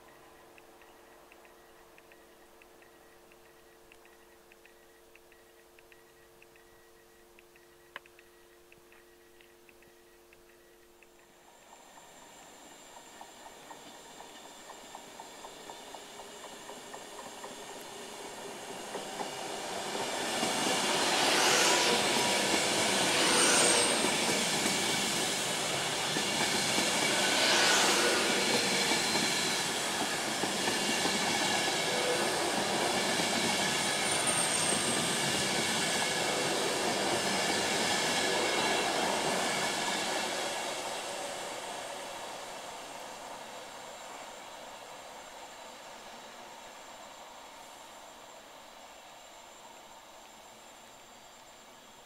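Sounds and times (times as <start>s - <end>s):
electric train passing: 11.2s - 52.0s
wheels squealing on rails: 11.5s - 45.8s.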